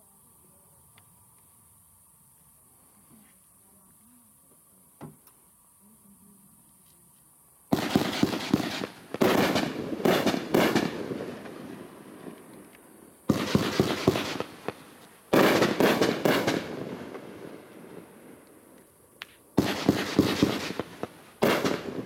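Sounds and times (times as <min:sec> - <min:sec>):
fireworks rapid popping: 0:07.7 - 0:11.6, 0:13.3 - 0:17.2, 0:19.2 - 0:22.0.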